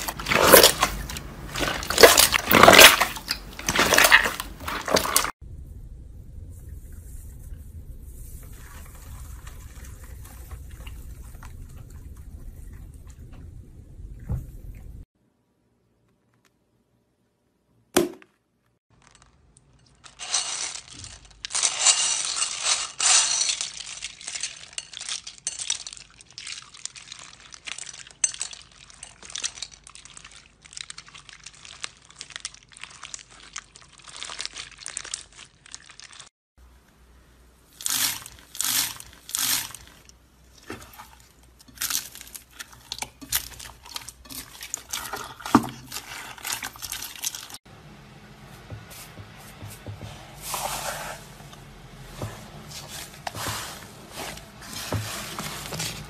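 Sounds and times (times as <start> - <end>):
slime crackling and popping: 25.1 - 36.3.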